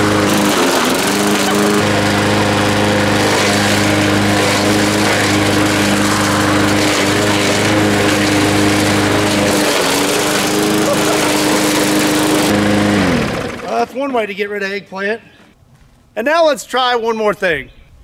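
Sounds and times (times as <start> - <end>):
lawn mower engine running: 0.0 - 14.4.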